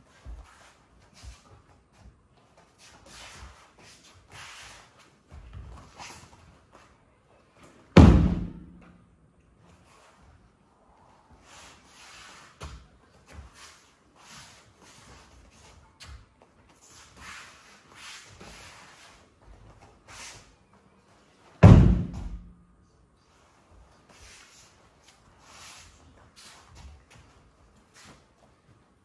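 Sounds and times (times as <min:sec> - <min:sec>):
feet shuffling on mats: 0:00.0 - 0:09.0, 0:09.6 - 0:22.5, 0:23.1 - 0:29.0
body slapping onto mat: 0:08.0 - 0:08.9, 0:21.6 - 0:22.5.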